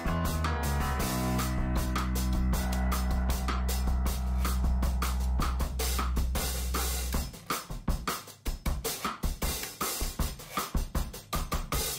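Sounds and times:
low bass note: 0.0s - 6.9s
drum beat with hi-hat and cymbals: 0.0s - 11.9s.

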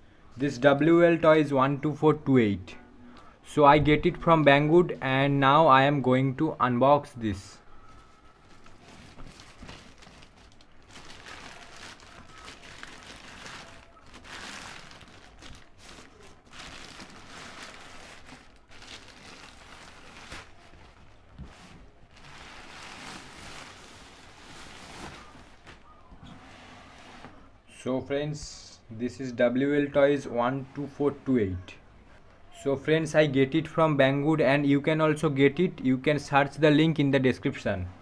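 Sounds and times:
plastic bag crinkling and tearing: 8.5s - 25.8s.

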